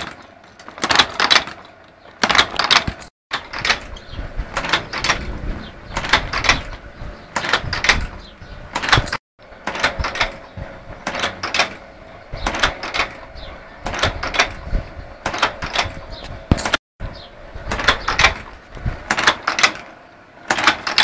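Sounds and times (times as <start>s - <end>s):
machine clattering with metallic clacks: 0.0s - 16.8s, 17.5s - 21.0s
low rumble: 3.8s - 8.7s.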